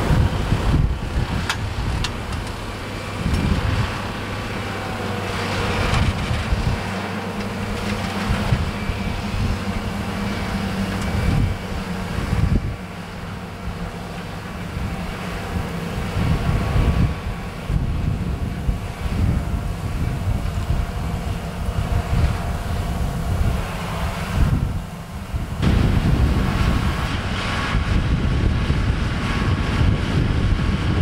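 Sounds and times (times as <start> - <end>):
tractor diesel engine running: 0.0 - 31.0
wind on microphone: 0.0 - 31.0.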